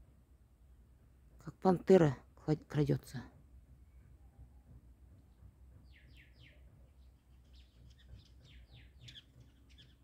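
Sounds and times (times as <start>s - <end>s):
high bird chirps: 5.8s - 10.0s.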